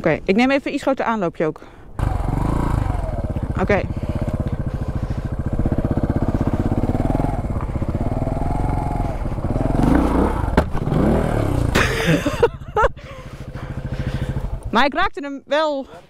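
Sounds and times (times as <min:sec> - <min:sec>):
dirt bike engine revving: 0:02.0 - 0:12.5, 0:13.2 - 0:14.8.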